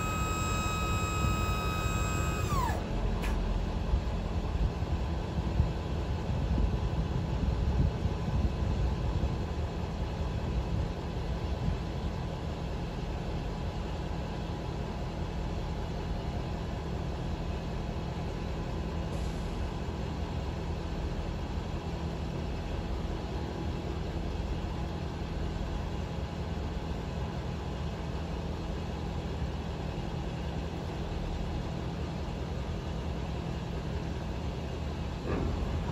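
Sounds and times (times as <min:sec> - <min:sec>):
hydraulic hoist lowering: 0:00.0 - 0:03.6
truck engine idling: 0:00.0 - 0:06.2.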